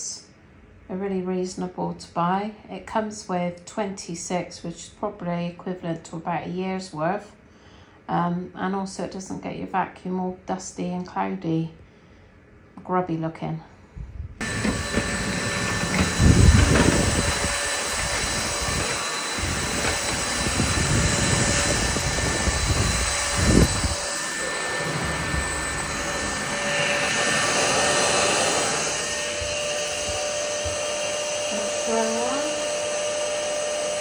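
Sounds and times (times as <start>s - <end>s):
stick vacuum running: 14.4s - 34.0s.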